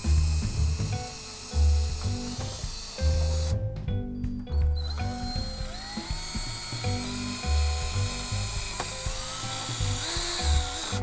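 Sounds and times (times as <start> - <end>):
cordless drill whining: 0.0 - 3.6, 4.7 - 11.0.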